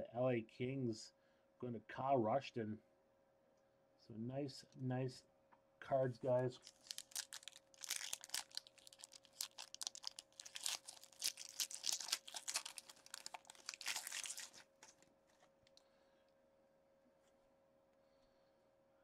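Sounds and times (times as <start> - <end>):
foil wrapper tearing and crinkling: 6.6 - 15.0.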